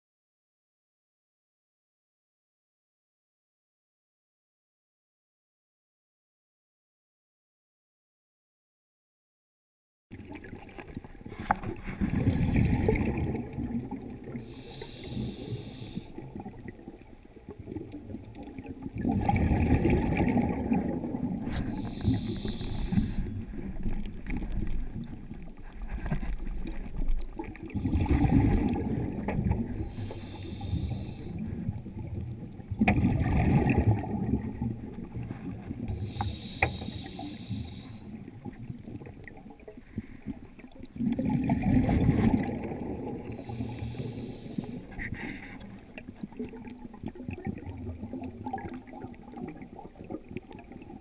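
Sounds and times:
scuba regulator exhale bubbling: 10.2s - 51.0s
regulator inhale hiss: 14.4s - 16.3s, 21.5s - 23.8s, 29.7s - 31.6s, 35.9s - 38.2s, 43.3s - 45.7s.

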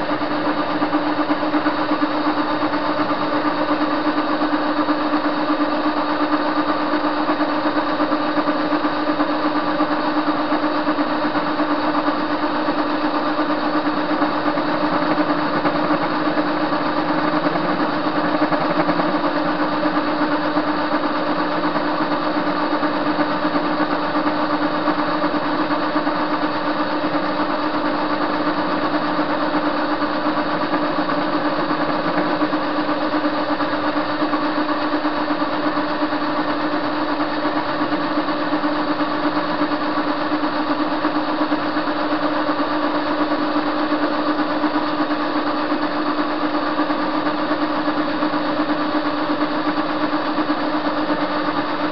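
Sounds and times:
lathe turning metal bar: 12.0s - 40.9s.

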